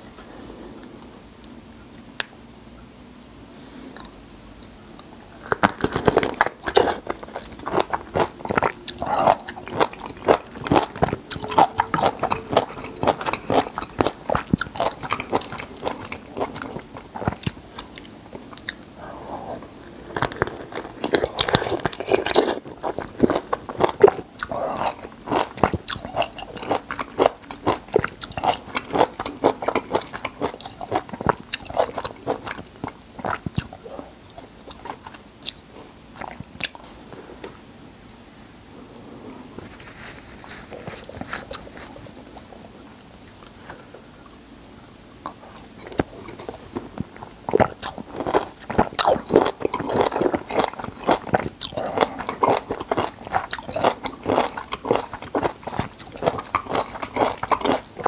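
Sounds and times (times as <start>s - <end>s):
wet chewing of lemon: 5.0s - 18.8s, 20.1s - 37.0s, 45.2s - 58.0s.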